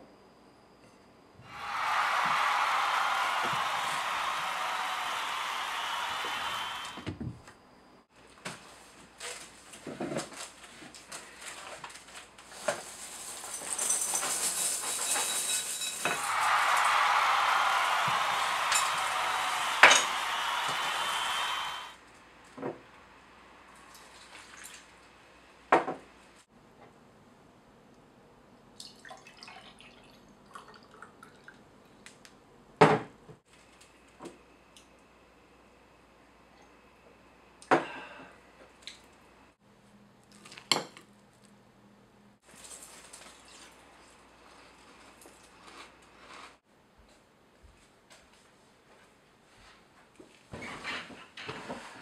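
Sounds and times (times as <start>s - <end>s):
cardboard box and plastic rustling: 8.5s - 15.1s
milk pouring into glass: 28.8s - 31.6s.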